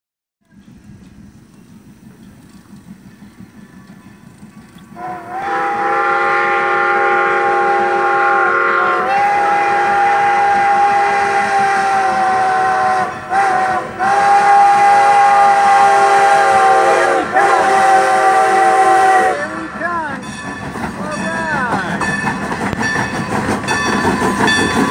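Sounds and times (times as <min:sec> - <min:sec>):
steam locomotive whistle blasts: 0:04.9 - 0:19.7.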